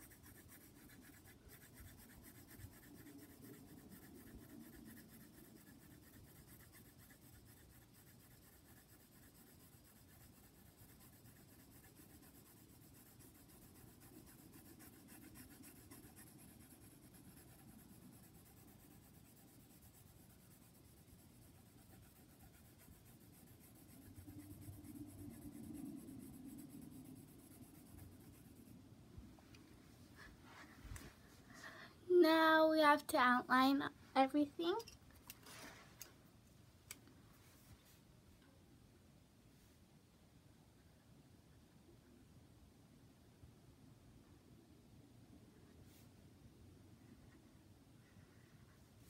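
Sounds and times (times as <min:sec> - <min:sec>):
pencil scratching on paper: 0:00.0 - 0:28.8.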